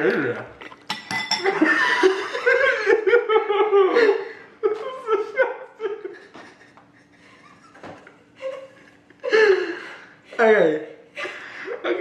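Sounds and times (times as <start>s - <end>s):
men laughing hard: 1.4s - 10.0s.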